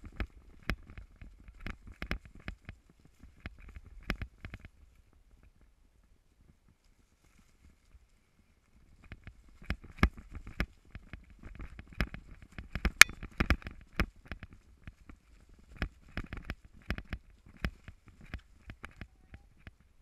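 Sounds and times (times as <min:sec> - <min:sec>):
mountain bike rattling over rough trail: 0:08.8 - 0:19.9.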